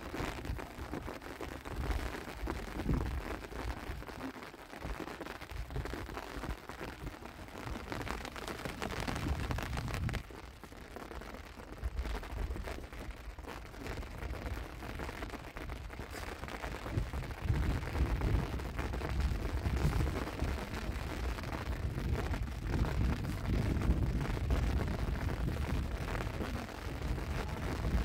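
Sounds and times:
wind buffeting microphone: 0:01.7 - 0:03.3, 0:07.8 - 0:10.3, 0:15.6 - 0:28.0.

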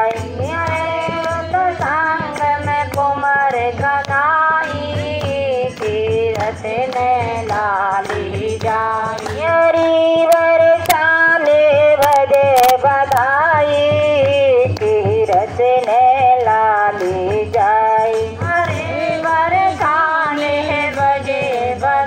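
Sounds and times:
music backing: 0:00.0 - 0:22.0
woman singing devotional song: 0:00.0 - 0:22.0
sharp clicks: 0:12.0 - 0:13.3.

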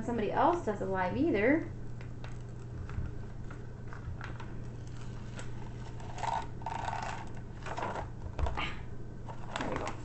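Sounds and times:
steady low hum: 0:00.0 - 0:10.0
plastic film peeling crackle: 0:02.0 - 0:08.1.

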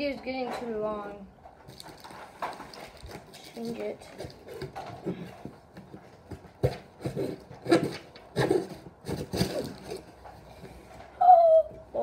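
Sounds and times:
cardboard box scraping and crinkling: 0:06.6 - 0:10.8.

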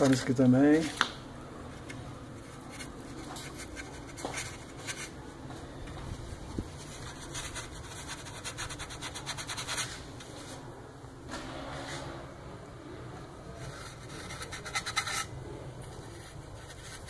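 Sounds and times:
low steady hum: 0:00.0 - 0:17.0
brush scratching and dabbing grease: 0:02.3 - 0:05.3, 0:06.6 - 0:10.0, 0:13.6 - 0:17.0.

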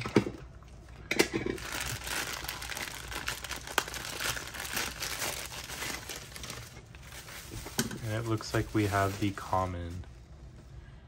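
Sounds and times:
sharp plastic crackles: 0:01.1 - 0:10.1
plastic packaging crinkling: 0:01.5 - 0:10.1.

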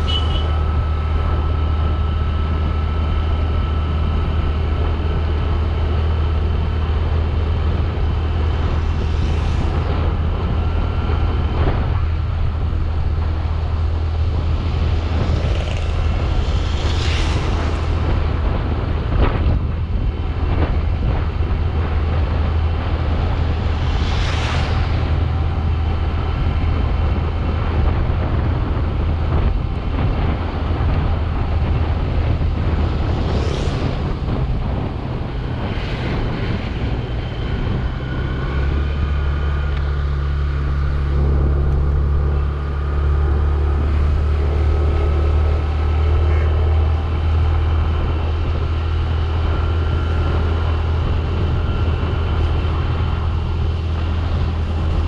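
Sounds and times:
motorcycle engine rumble: 0:00.0 - 0:55.0
wind rush: 0:00.0 - 0:55.0
tyre hiss on wet road: 0:14.8 - 0:18.6.

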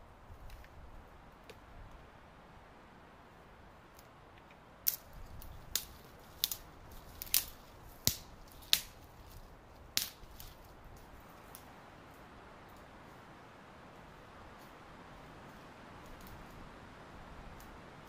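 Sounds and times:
dry branches snapping: 0:03.9 - 0:11.7, 0:16.0 - 0:16.6
brittle twigs rustling: 0:04.9 - 0:11.7.

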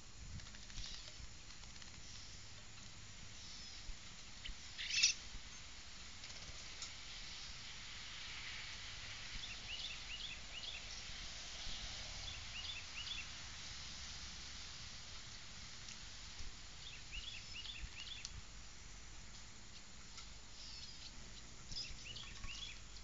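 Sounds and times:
faint steady hiss: 0:00.0 - 0:23.0
small songbirds chirping: 0:00.7 - 0:05.8, 0:09.1 - 0:13.5, 0:16.6 - 0:23.0.

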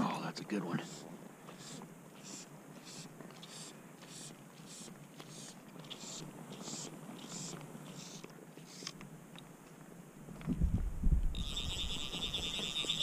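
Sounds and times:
fly line hissing strokes: 0:00.7 - 0:09.0, 0:11.4 - 0:13.0.

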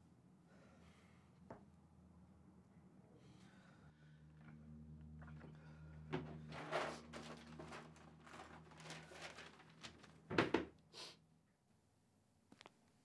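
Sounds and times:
papers rustling: 0:06.4 - 0:10.7.

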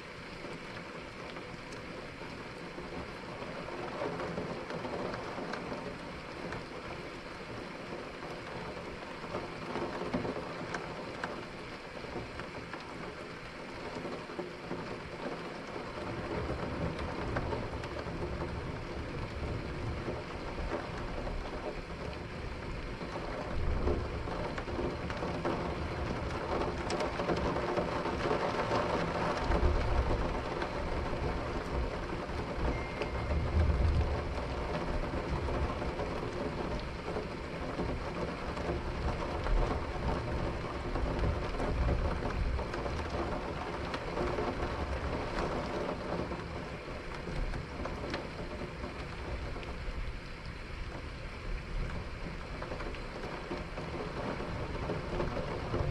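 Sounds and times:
steady rain: 0:00.0 - 0:55.9
low rumbles of thunder: 0:23.5 - 0:46.3.

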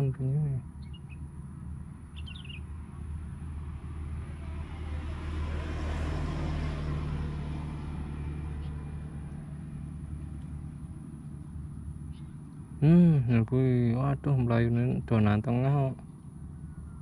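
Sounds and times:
vehicle engine passing: 0:00.0 - 0:17.0
bird chirp: 0:00.5 - 0:02.8, 0:11.4 - 0:12.8, 0:16.0 - 0:17.0.

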